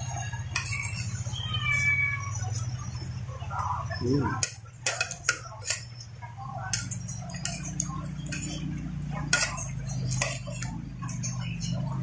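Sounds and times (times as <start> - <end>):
metal spoon scraping a plate: 0.0 - 1.6, 3.6 - 11.9.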